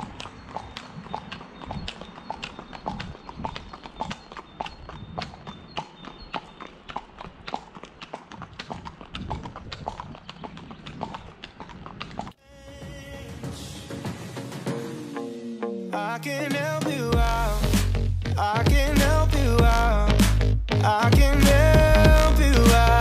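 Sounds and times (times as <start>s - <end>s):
horse hooves clip-clopping on asphalt: 0.0s - 12.4s.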